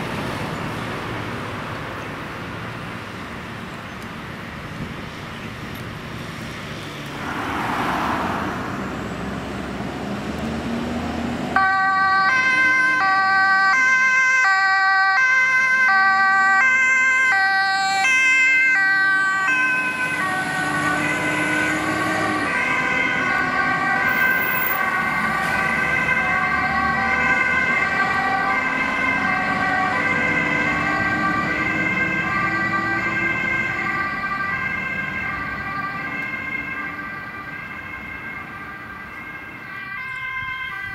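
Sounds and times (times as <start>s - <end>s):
road noise: 0.0s - 40.9s
truck engine accelerating: 6.4s - 11.8s
fire engine two-tone siren: 10.8s - 40.9s.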